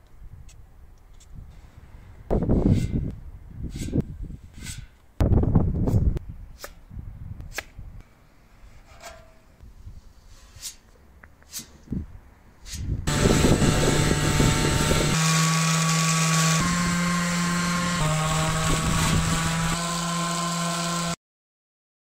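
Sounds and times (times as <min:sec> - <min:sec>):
orbital sander buzzing: 0:13.1 - 0:21.2.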